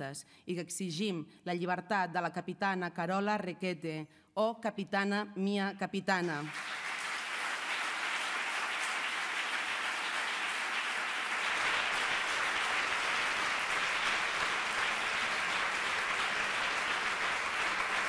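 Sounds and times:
crowd applauding: 6.5s - 18.0s.

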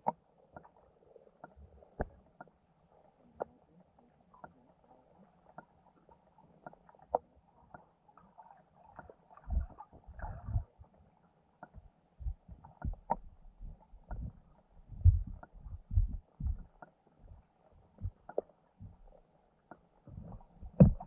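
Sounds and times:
faint underwater clicks: 0.0s - 21.0s
low underwater thumps: 9.4s - 10.7s, 11.8s - 17.4s, 18.0s - 19.2s, 20.1s - 21.0s.

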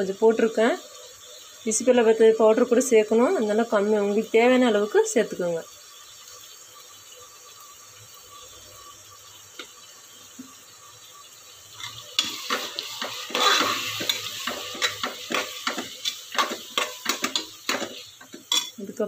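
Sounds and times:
food sizzling in a pot: 0.0s - 19.0s
metal spoon scraping a pot: 11.8s - 18.8s.

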